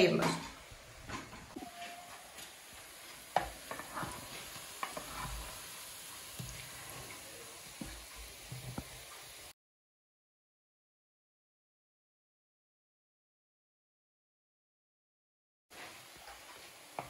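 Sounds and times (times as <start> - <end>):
oil sizzling in pan: 0.0 - 9.6, 15.7 - 17.0
wooden spoon tapping pan: 3.3 - 3.9.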